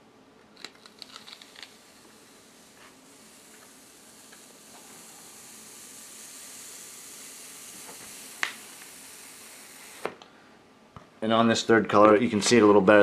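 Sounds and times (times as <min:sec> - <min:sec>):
paper clicks: 0:00.6 - 0:01.8
hand rubbing paper: 0:00.7 - 0:10.0.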